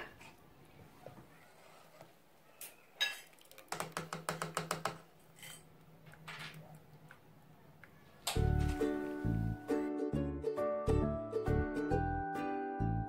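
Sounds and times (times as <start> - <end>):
soft wet sounds of curds: 1.4 - 3.8.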